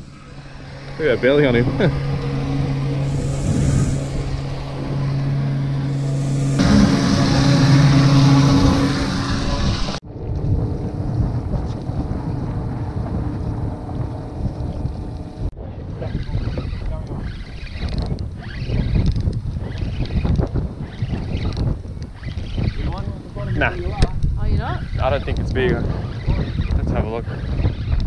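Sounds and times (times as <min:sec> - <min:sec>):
boat motor humming: 0:00.0 - 0:15.5
wind on microphone: 0:00.0 - 0:28.0.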